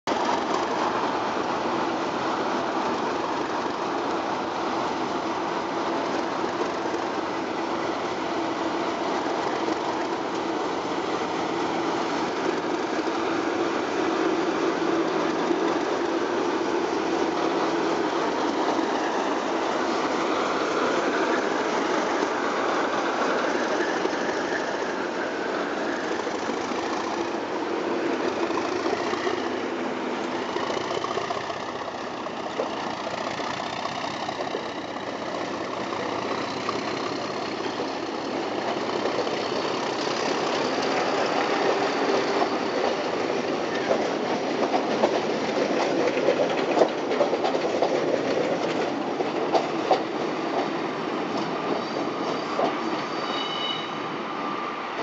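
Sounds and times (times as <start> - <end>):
diesel locomotive engine: 0.1 - 55.0
train wheels clattering: 6.0 - 53.6.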